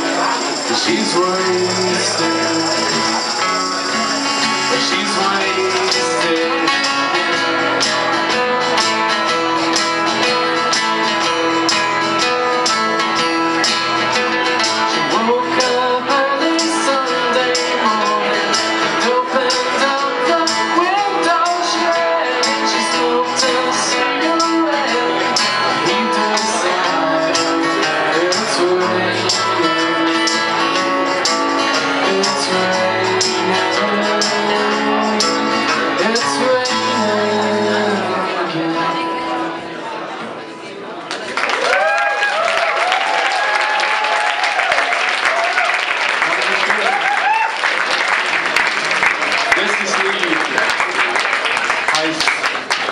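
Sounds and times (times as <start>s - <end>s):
hand shaker: 0.0s - 4.7s
tambourine: 0.0s - 7.2s, 16.6s - 37.5s
man singing: 0.0s - 8.8s, 14.8s - 39.6s
acoustic guitars strummed: 0.0s - 40.6s.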